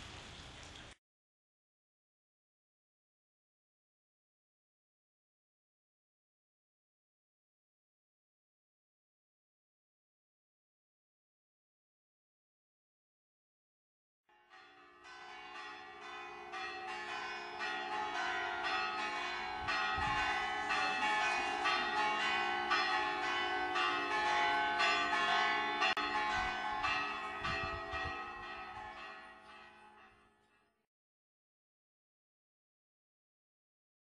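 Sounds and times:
church bells pealing: 14.3 - 30.6.

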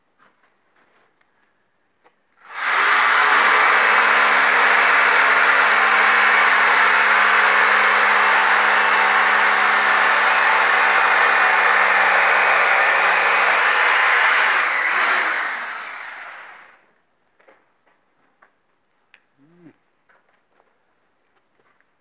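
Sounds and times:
motor machine running loudly: 2.5 - 16.8.

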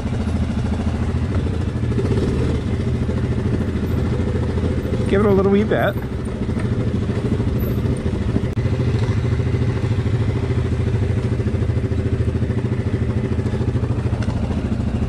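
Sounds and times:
engine running at low speed: 0.0 - 15.0.

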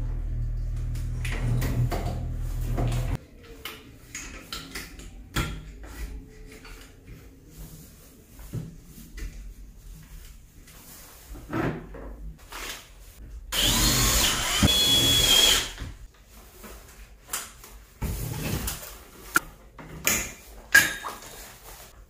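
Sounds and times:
power drill whine: 13.6 - 15.8.

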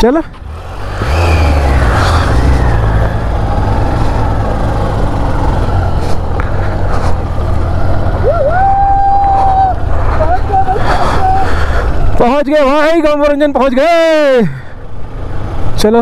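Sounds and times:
motorcycle engine running: 0.0 - 16.0
road and wind noise: 0.0 - 16.0.

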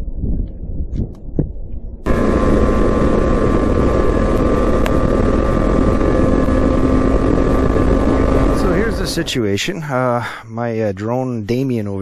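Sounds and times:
snowmobile engine running: 2.0 - 10.2
sharp tick: 4.3 - 5.0.

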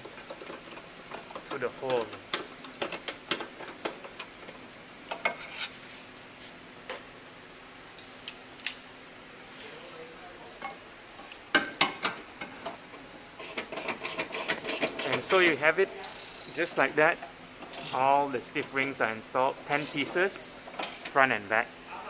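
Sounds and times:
ratchet wrench clicking: 16.0 - 16.6, 20.8 - 21.2.

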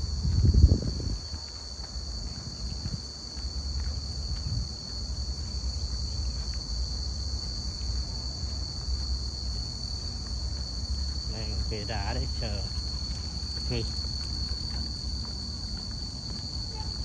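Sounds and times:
insects singing: 11.2 - 17.0.

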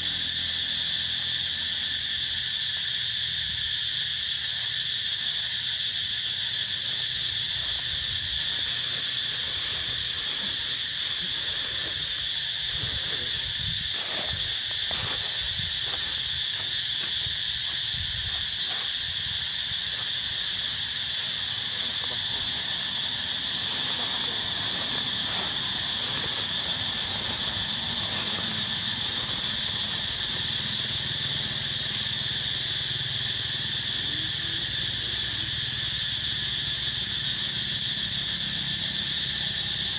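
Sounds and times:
insects droning: 0.0 - 39.9.

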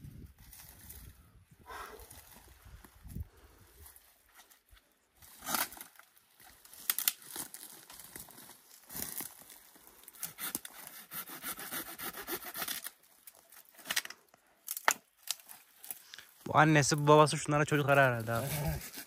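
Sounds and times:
branches cracking: 3.8 - 10.9, 12.6 - 17.1.

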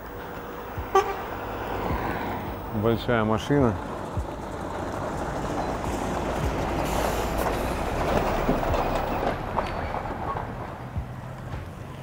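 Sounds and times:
truck passing by: 0.0 - 12.0.

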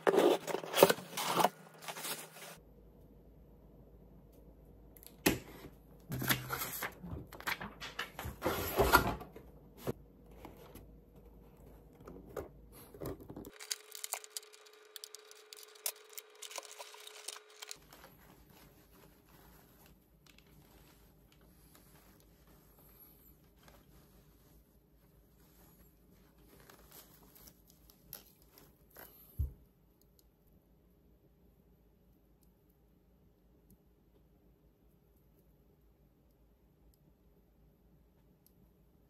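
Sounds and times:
packaging rustling and crinkling: 0.0 - 2.6, 12.8 - 22.6.

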